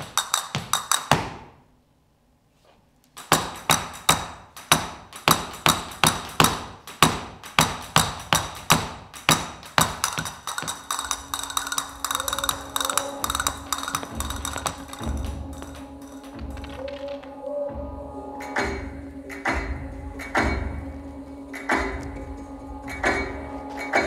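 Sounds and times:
castanets clacking: 0:00.0 - 0:01.2, 0:03.1 - 0:17.3.

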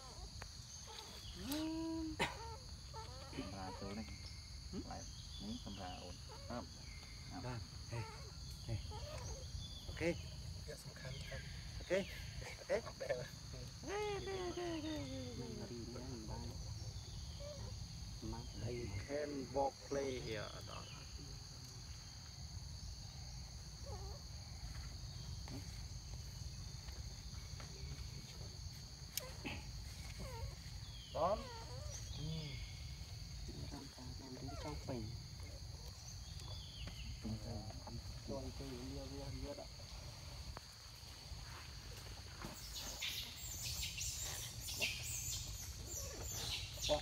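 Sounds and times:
insect chorus: 0:00.0 - 0:47.0.

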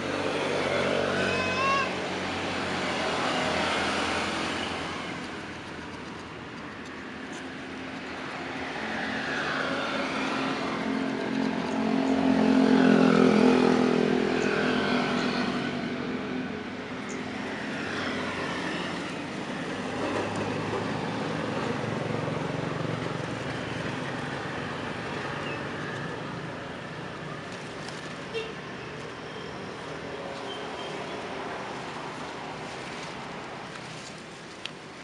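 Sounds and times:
motor vehicles passing: 0:00.0 - 0:35.0.

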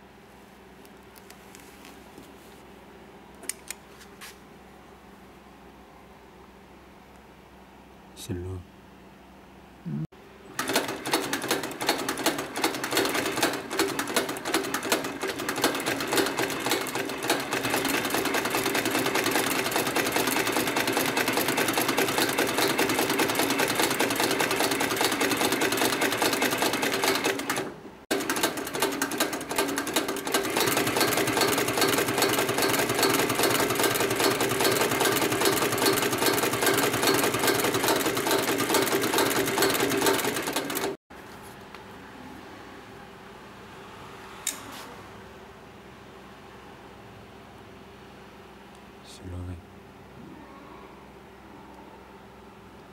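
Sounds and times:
sewing machine stitching: 0:10.5 - 0:41.0.

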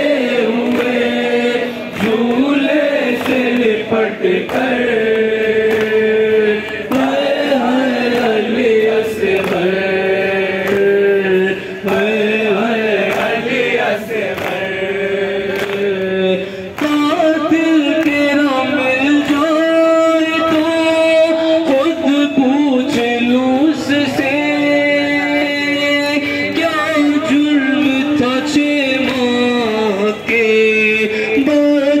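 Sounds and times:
men chanting in unison: 0:00.0 - 0:32.0
lead voice on microphone: 0:15.0 - 0:32.0.

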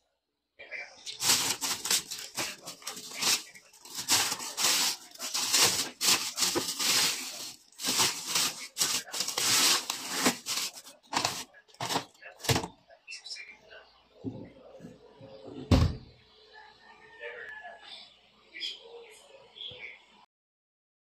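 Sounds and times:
plastic bags rustling and crinkling: 0:01.0 - 0:12.7.

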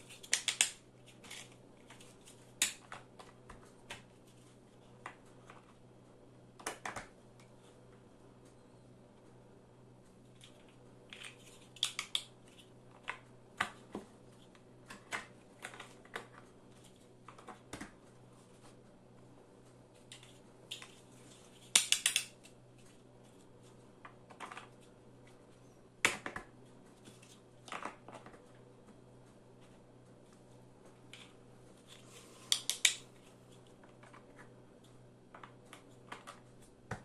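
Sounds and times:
plastic blocks clicking: 0:00.1 - 0:01.5, 0:21.8 - 0:22.4, 0:32.5 - 0:33.0.

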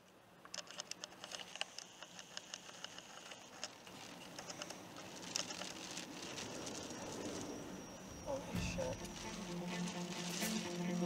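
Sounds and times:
raindrops pattering on microphone: 0:00.5 - 0:07.8.

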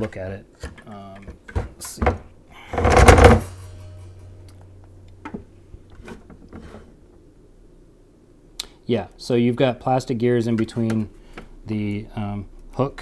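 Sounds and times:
low hum: 0:03.0 - 0:05.9.

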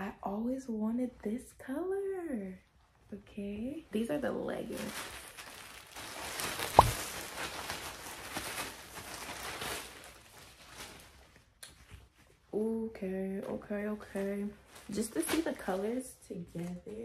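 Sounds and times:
plastic bag rustling: 0:04.0 - 0:12.4, 0:14.0 - 0:16.8
sharp thump: 0:06.8 - 0:07.0.

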